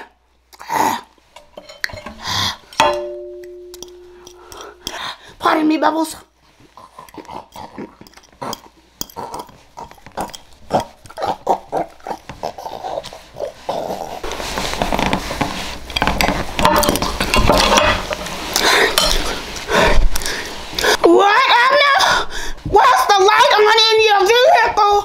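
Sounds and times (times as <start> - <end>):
slurping and snuffling: 6.5 - 15.1.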